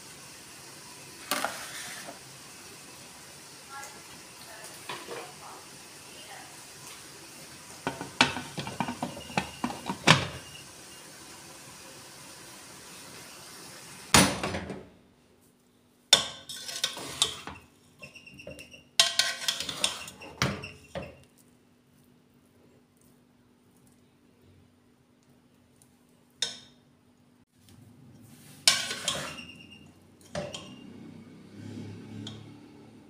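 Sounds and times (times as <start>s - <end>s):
spatula scraping pot: 7.8s - 10.4s, 16.4s - 21.2s, 28.6s - 30.8s.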